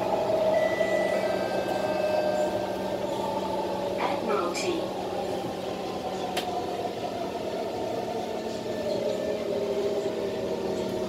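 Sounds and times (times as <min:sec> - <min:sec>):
metro train running noise: 0:00.0 - 0:11.0
multi-tone train whine: 0:00.0 - 0:11.0.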